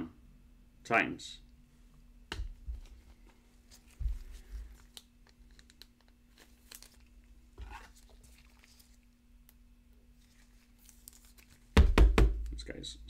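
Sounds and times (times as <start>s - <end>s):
card packaging clicks and crinkles: 4.8s - 7.1s.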